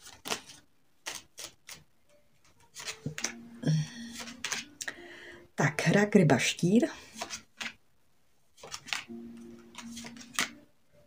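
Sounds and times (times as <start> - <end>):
cards rustling: 0.0 - 1.8, 2.4 - 5.0, 7.0 - 7.8, 8.6 - 10.6
cards clicking and tapping: 0.0 - 5.0, 7.1 - 7.8, 8.6 - 10.6.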